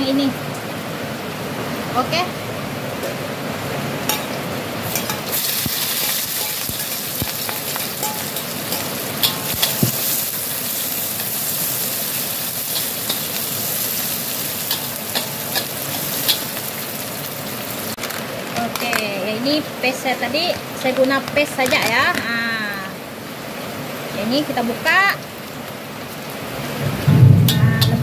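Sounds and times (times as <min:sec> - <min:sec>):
food sizzling in hot oil: 0:03.0 - 0:23.0, 0:24.0 - 0:28.0
metal spatula scraping a wok: 0:04.9 - 0:14.0.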